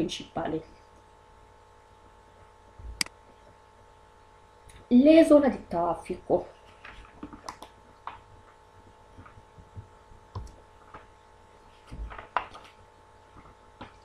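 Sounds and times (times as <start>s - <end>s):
electrical hum: 0.0s - 14.0s
soft low thumps: 2.8s - 3.0s, 9.4s - 10.6s.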